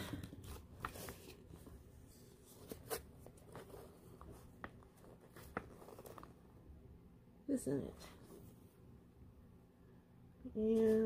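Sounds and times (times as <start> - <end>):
packaging rustling: 0.3 - 6.5.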